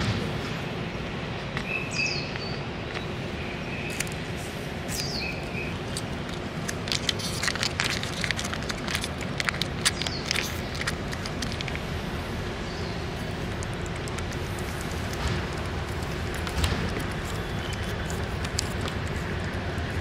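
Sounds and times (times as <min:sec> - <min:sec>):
low traffic hum: 0:00.0 - 0:20.0
plastic wrapper crinkling: 0:03.9 - 0:12.5, 0:13.1 - 0:20.0.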